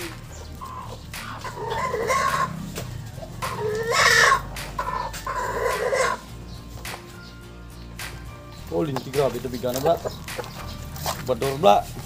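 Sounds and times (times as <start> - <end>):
rooster crowing: 1.5 - 2.6, 3.4 - 6.2.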